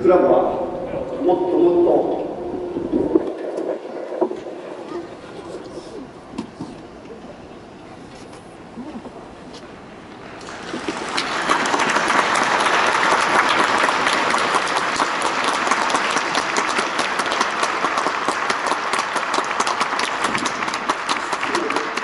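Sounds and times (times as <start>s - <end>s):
stadium crowd applauding: 10.4s - 22.0s.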